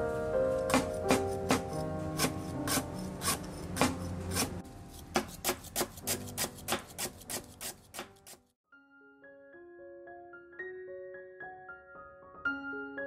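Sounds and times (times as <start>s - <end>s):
gentle piano music: 0.0s - 13.0s
knife chopping on wooden board: 0.7s - 8.4s.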